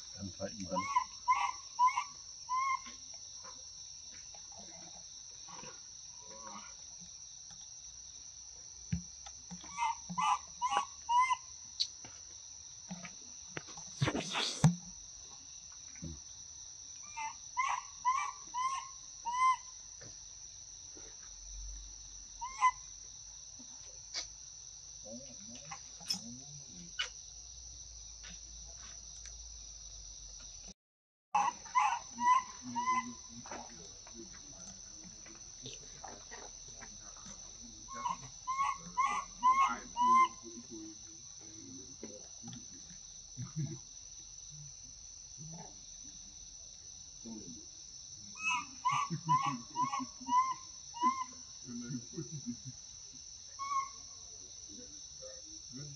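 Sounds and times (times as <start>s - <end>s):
insects droning: 0.0s - 55.9s
short pitched animal calls: 0.5s - 3.0s, 9.6s - 11.9s, 31.4s - 33.4s, 37.9s - 40.7s, 48.4s - 51.4s.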